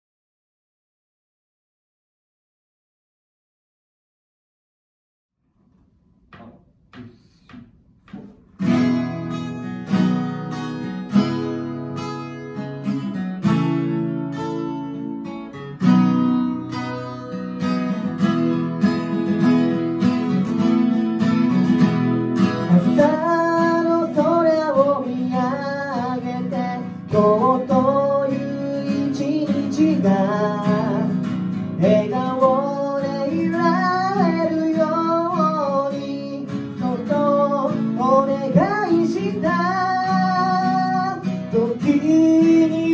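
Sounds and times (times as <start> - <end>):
acoustic guitars strumming: 5.6 - 42.9
soft taps: 5.7 - 8.7.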